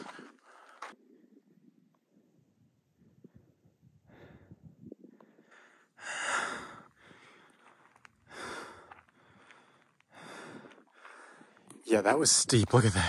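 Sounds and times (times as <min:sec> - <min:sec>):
person breathing hard: 0:03.2 - 0:11.7.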